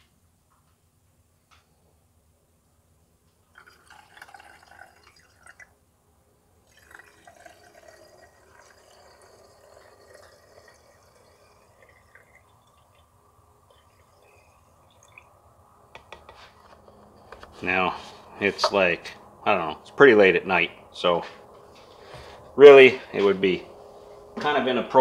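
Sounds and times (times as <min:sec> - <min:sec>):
fuel trickling into a tank: 0:03.4 - 0:05.8, 0:06.6 - 0:18.6.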